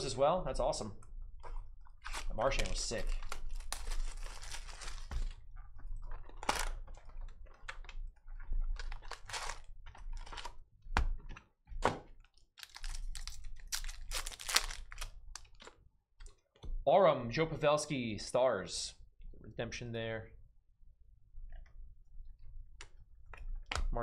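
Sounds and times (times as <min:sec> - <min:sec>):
cards and packaging rustling: 0:01.9 - 0:05.5, 0:06.1 - 0:08.0, 0:08.7 - 0:10.6, 0:12.2 - 0:15.8.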